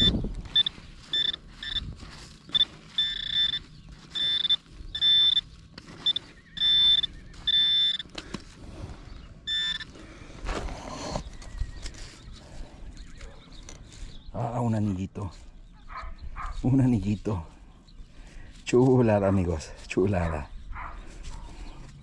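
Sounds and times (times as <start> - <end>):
metal detector beeping: 0.0 - 8.4, 9.4 - 10.0.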